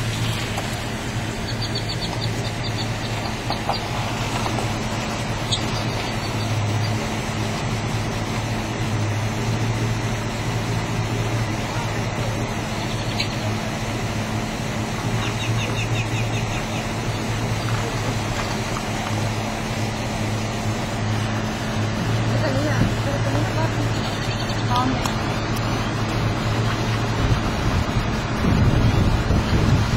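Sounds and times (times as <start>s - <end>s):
engine idling hum: 0.0s - 29.9s
faint bird chirps: 1.4s - 3.8s.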